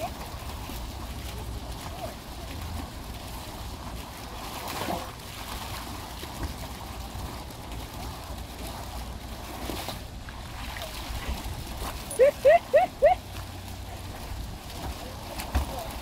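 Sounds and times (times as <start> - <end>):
fountain water splashing: 0.0 - 16.0
water sloshing from dog swimming: 0.0 - 16.0.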